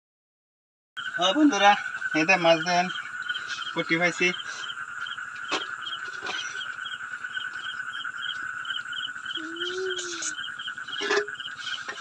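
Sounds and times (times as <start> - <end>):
crickets chirping: 1.0 - 12.0
frog low call: 1.0 - 12.0.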